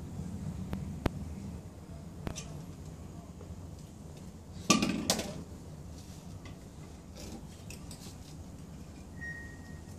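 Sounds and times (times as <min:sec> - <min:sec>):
cans clattering on concrete: 0:04.6 - 0:05.4.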